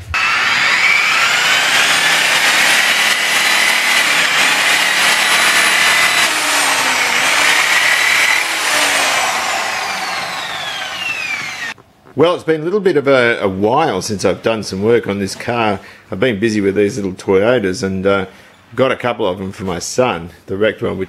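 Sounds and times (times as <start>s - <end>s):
electric polisher whining: 0.0s - 11.8s.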